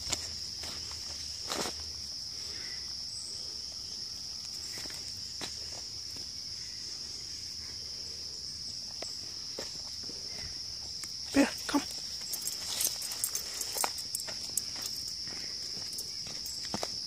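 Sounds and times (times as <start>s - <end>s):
footsteps on dirt path: 0.0s - 2.2s, 4.4s - 6.4s, 8.8s - 17.0s
high-pitched insect chorus: 0.0s - 17.0s.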